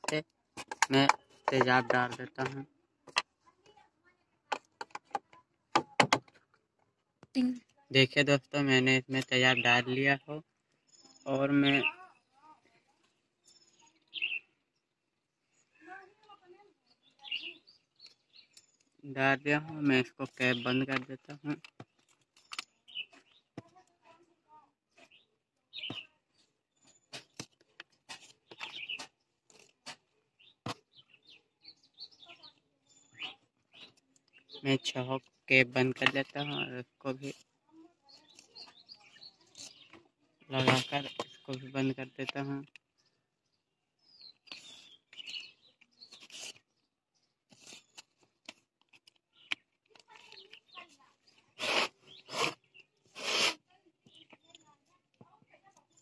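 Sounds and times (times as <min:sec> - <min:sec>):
high bird chirps: 0:13.4 - 0:14.6, 0:16.8 - 0:18.9, 0:25.0 - 0:26.2, 0:28.4 - 0:29.7, 0:30.4 - 0:34.9, 0:44.0 - 0:46.9.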